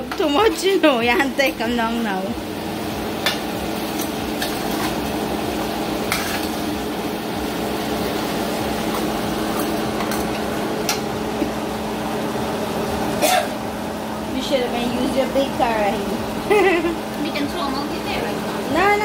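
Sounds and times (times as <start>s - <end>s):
curry sizzling in a frying pan: 0.0s - 19.0s
pot boiling: 0.0s - 19.0s
steady hum: 0.0s - 19.0s
spoon scraping a pan: 6.0s - 6.7s.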